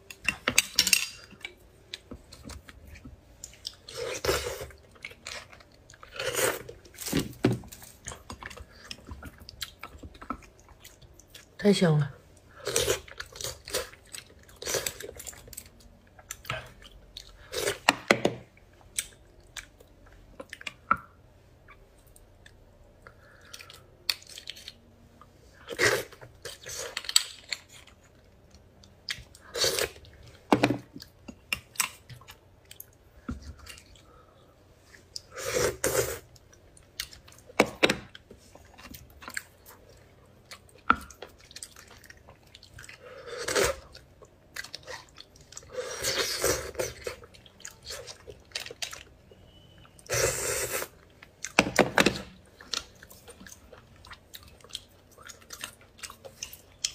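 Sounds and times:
chewing: 0:52.4 - 0:56.9.

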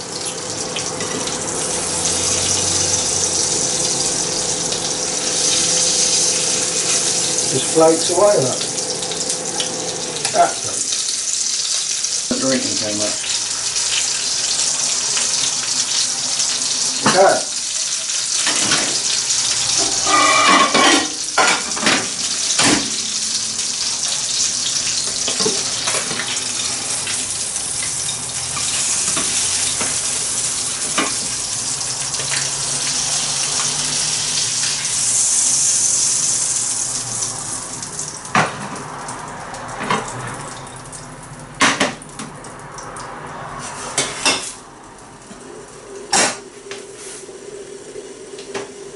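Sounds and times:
fish sizzling in frying pan: 0:00.0 - 0:48.9
spatula clinking and scraping pan: 0:19.8 - 0:22.0.

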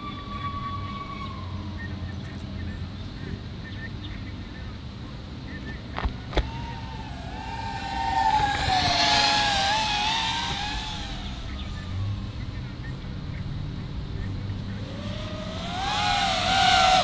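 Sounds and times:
drone propellers whining: 0:06.0 - 0:17.0.

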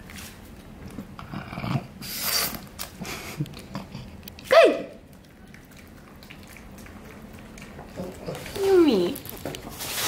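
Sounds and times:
dog chewing and licking: 0:02.6 - 0:10.0.

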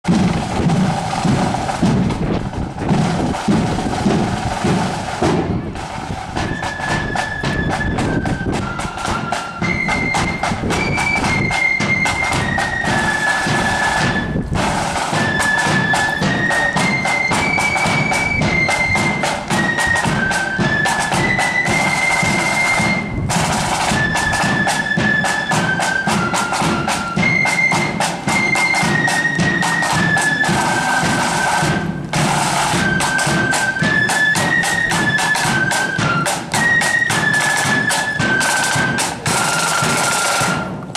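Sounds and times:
snare and bass drums: 0:00.0 - 0:40.9
flutes playing a melody: 0:00.1 - 0:40.9.

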